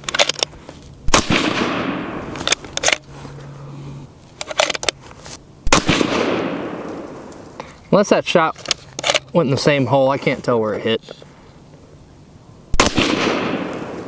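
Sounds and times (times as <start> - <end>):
suppressed rifle shots echoing: 1.1 - 2.6, 5.6 - 7.5, 12.7 - 14.0
rifle bolt metallic clicks: 2.4 - 3.0.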